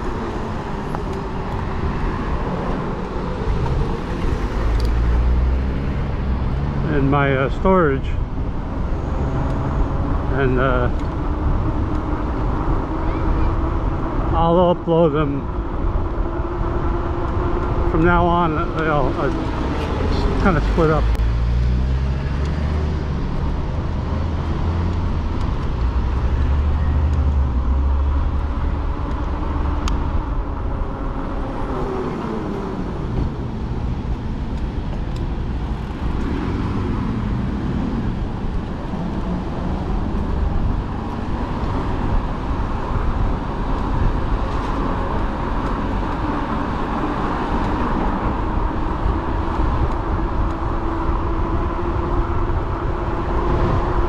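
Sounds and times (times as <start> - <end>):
vehicle passing: 0.0 - 14.4, 15.3 - 54.0
wind on microphone: 8.2 - 54.0
bicycle tyre hum: 21.4 - 54.0.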